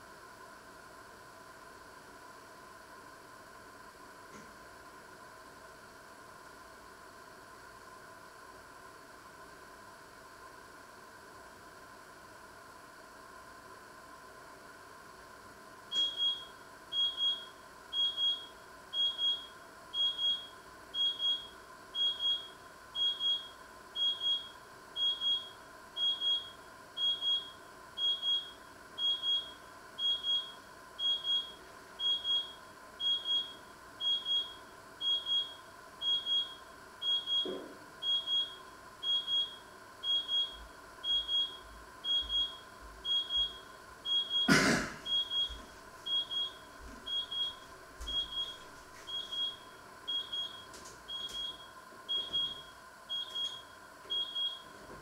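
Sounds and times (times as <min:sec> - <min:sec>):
faint steady hum: 0:00.0 - 0:55.0
electronic alarm double beeps: 0:15.9 - 0:54.7.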